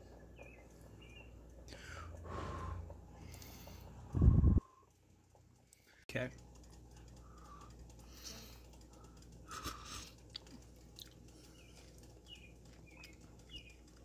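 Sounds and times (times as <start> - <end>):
chewing and lip-smacking: 8.8 - 14.0.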